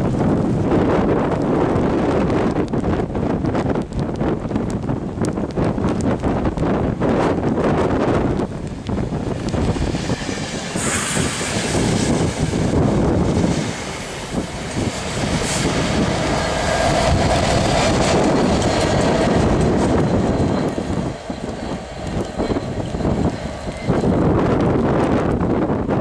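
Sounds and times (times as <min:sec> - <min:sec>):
train coaches rumbling and clattering: 0:00.0 - 0:26.0
drawn-out train squeal: 0:09.6 - 0:24.6.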